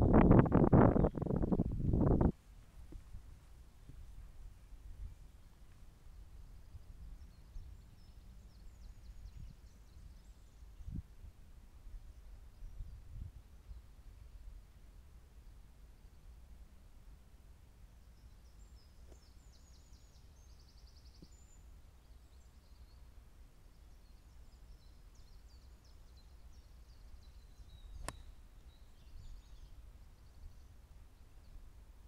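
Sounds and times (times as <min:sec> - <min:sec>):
low steady rumble: 0:00.0 - 0:08.4
songbirds chirping: 0:00.1 - 0:32.0.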